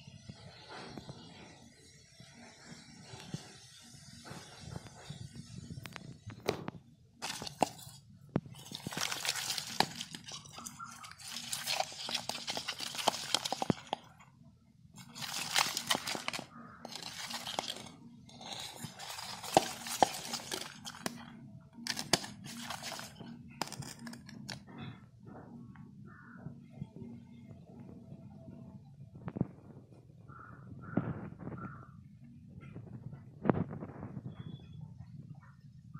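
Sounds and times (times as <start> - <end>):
fish splashing in metal bowl: 8.6 - 14.0, 15.0 - 21.2.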